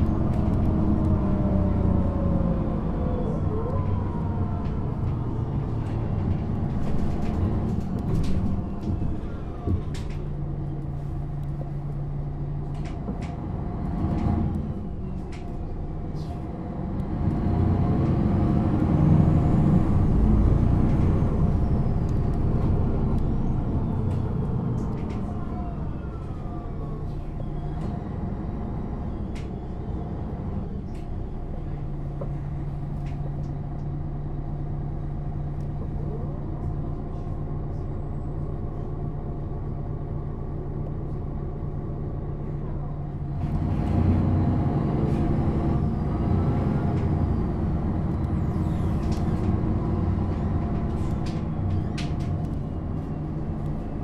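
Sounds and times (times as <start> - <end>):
bus diesel engine running: 0.0 - 54.0.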